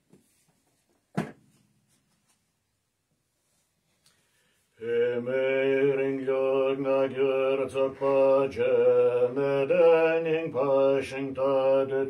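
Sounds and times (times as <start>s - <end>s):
man chanting in low monotone: 5.0s - 12.0s.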